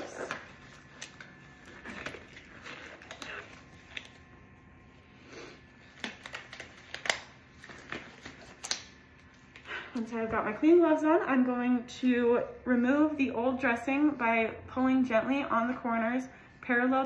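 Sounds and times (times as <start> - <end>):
rubber gloves rustling: 0.0 - 9.9.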